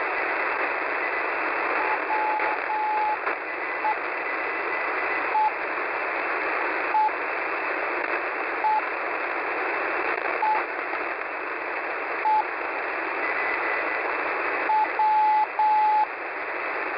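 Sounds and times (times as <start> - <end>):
static hiss: 0.0 - 16.9
short radio beacon beeps: 1.8 - 3.2, 14.7 - 16.1.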